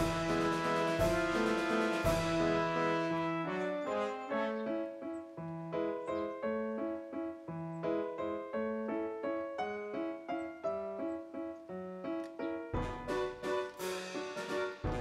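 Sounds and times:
keyboard playing piano melody: 0:00.0 - 0:15.0.

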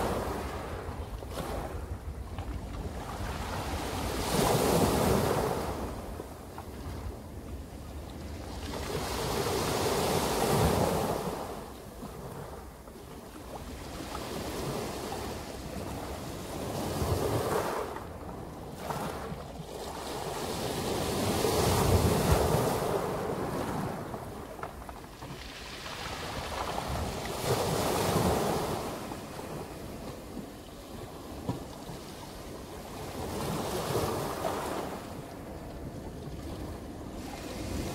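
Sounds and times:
waves breaking on pebble beach: 0:20.0 - 0:30.0.

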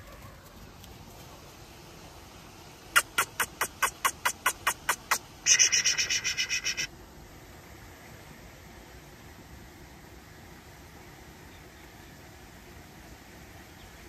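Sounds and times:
animal high rattle: 0:03.0 - 0:06.9
animal sharp chips: 0:03.0 - 0:06.9.

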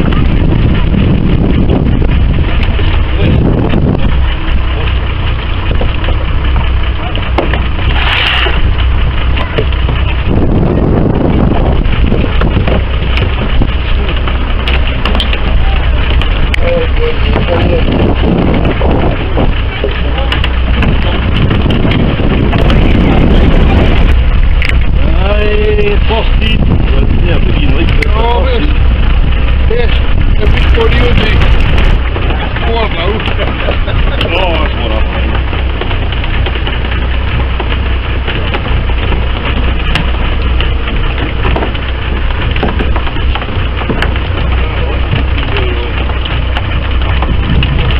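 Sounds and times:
boat engine humming: 0:00.0 - 0:47.9
wind buffeting microphone: 0:00.0 - 0:47.9
light knocks and taps: 0:35.3 - 0:47.8.

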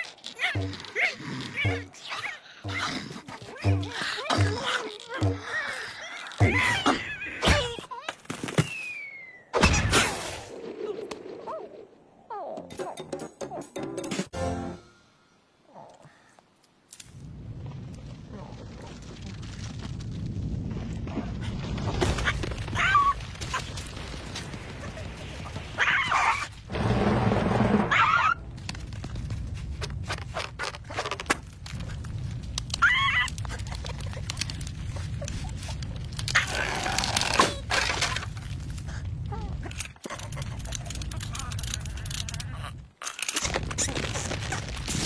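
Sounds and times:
cartoon squawks and grunts: 0:00.0 - 0:08.1
boulder rolling rumble: 0:17.2 - 0:42.9.

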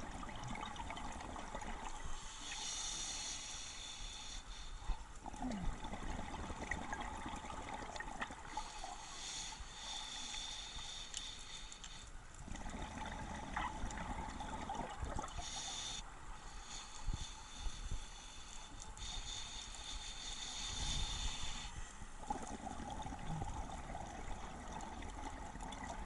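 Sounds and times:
exhaled air bubbling underwater: 0:00.0 - 0:03.3, 0:04.9 - 0:09.2, 0:12.3 - 0:16.0, 0:20.1 - 0:26.0
scuba regulator inhale hiss: 0:02.0 - 0:05.0, 0:08.5 - 0:12.2, 0:15.3 - 0:22.3.

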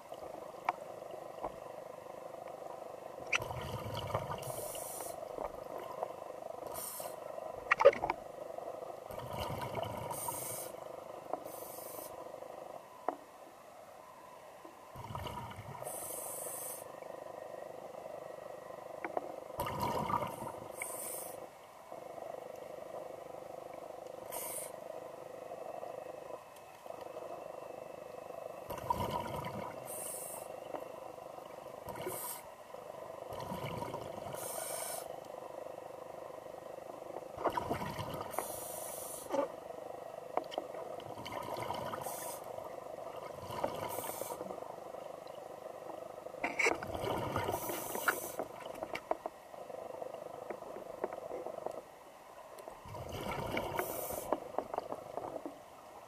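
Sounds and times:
regulator hissing inhalations: 0:04.4 - 0:05.2, 0:06.7 - 0:07.2, 0:10.1 - 0:10.8, 0:11.4 - 0:12.2, 0:15.8 - 0:16.9, 0:20.7 - 0:21.5, 0:24.3 - 0:24.8, 0:34.3 - 0:35.1, 0:38.4 - 0:39.4, 0:43.9 - 0:44.5, 0:53.7 - 0:54.4.

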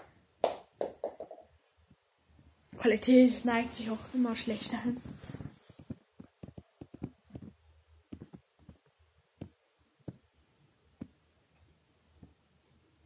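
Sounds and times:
small clicks and taps: 0:05.7 - 0:10.2.

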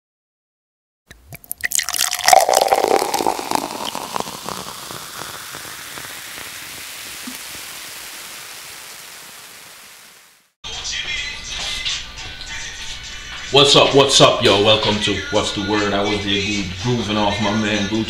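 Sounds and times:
loud crackling burst: 0:02.0 - 0:10.6
steady hiss: 0:02.6 - 0:10.6.

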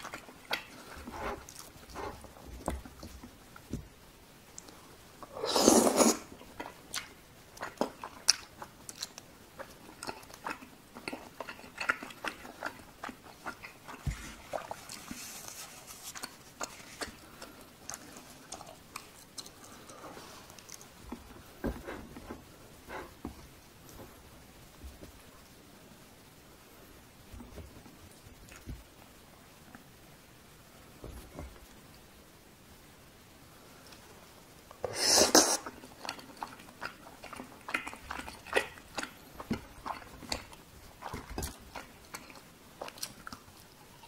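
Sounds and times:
wet chewing with mouth clicks: 0:00.0 - 0:24.0, 0:34.7 - 0:44.0
slurping: 0:05.2 - 0:08.0, 0:34.8 - 0:40.4.

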